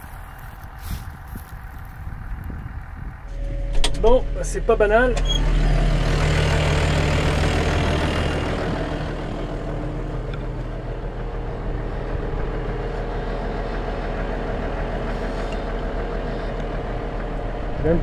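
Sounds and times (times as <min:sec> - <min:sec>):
tractor diesel engine idling: 0:00.0 - 0:18.0.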